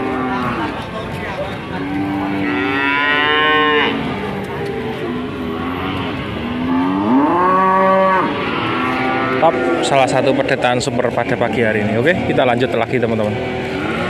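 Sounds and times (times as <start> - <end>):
cattle mooing: 1.7 - 10.9, 13.2 - 14.0.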